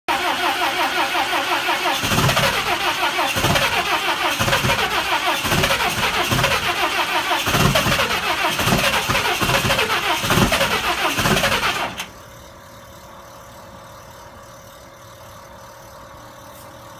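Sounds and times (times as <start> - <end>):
diesel engine cranking: 0.1 - 12.2.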